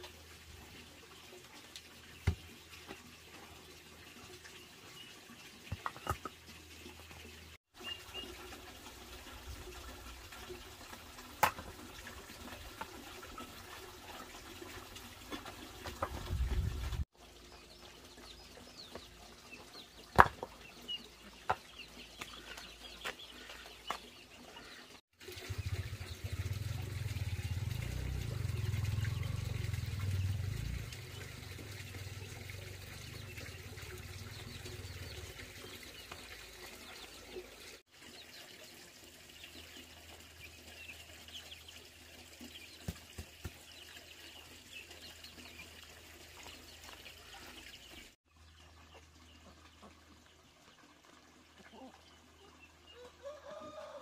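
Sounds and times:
small birds chirping: 15.4s - 38.5s.

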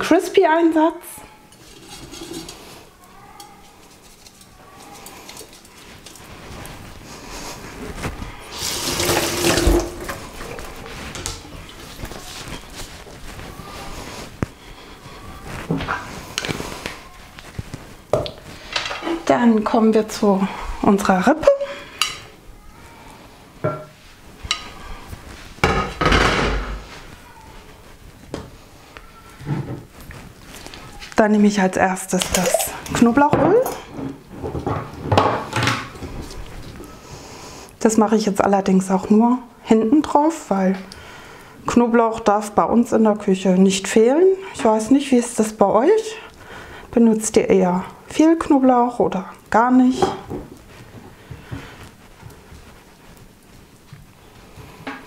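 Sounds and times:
kitchen clatter: 1.5s - 6.6s, 8.5s - 12.9s, 18.1s - 19.4s, 25.6s - 26.9s, 32.1s - 36.0s
tap water running into sink: 8.6s - 10.2s
objects knocking on a worktop: 23.6s - 23.9s, 25.6s - 26.8s.

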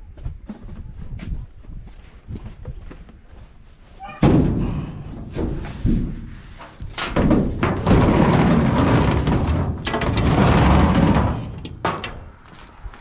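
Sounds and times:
metal scraping along metal: 5.6s - 12.3s.

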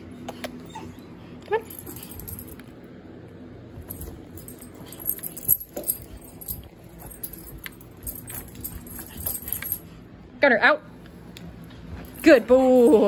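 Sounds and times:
collar tags jingling: 1.6s - 2.8s, 3.8s - 10.0s, 11.9s - 13.0s
dogs scuffling: 3.8s - 9.9s.

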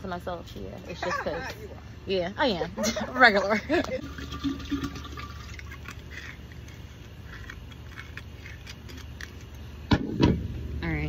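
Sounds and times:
liquid pouring into glass dispenser: 4.0s - 5.6s.

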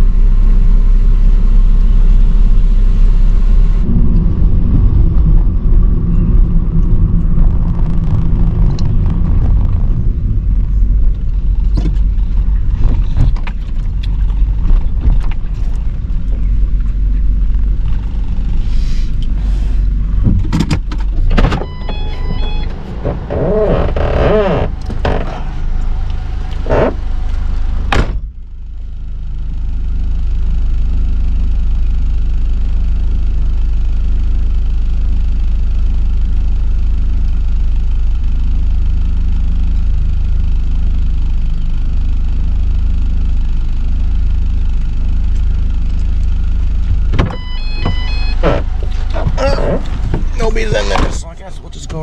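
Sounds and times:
van engine idling: 0.0s - 52.0s.

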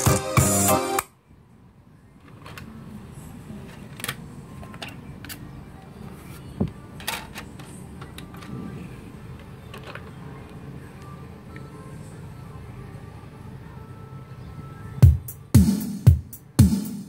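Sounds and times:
music: 0.0s - 1.2s, 6.4s - 17.0s.

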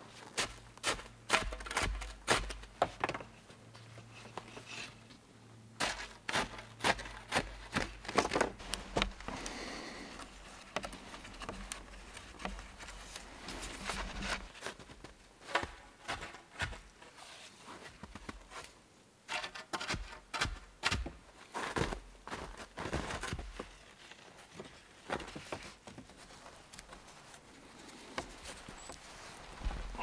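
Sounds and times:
wooden poles knocking and scraping: 0.8s - 3.4s, 5.8s - 16.9s
cord rubbing on poles: 8.6s - 14.6s.

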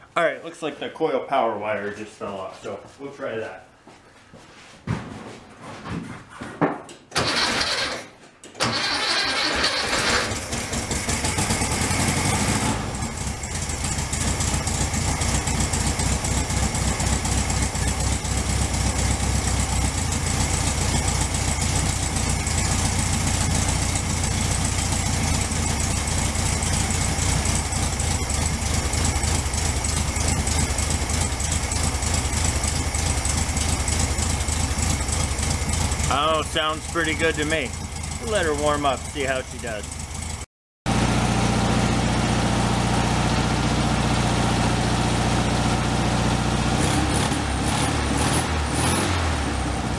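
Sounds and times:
starter motor cranking: 7.2s - 11.2s
car engine idling: 8.8s - 46.8s.

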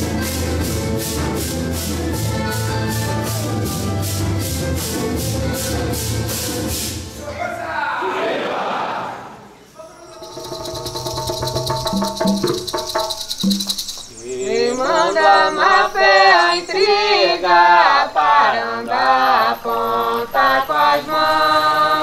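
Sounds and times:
group singing a hymn: 8.0s - 10.4s, 14.1s - 22.0s
shaken rattle: 10.1s - 14.8s.

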